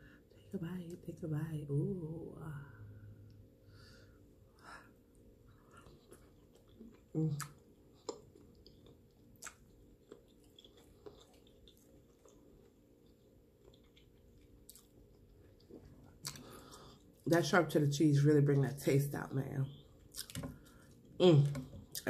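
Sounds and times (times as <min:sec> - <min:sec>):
close-up chewing with wet smacks: 0:05.5 - 0:17.3, 0:20.0 - 0:22.0.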